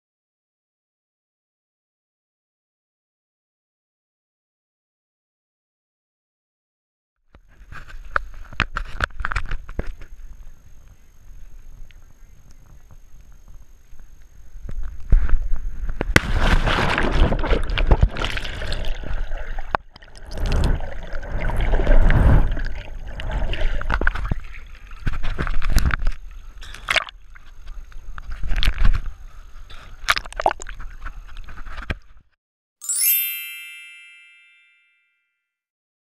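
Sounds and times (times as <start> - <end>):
underwater bubbling and gurgling: 16.6 - 31.5.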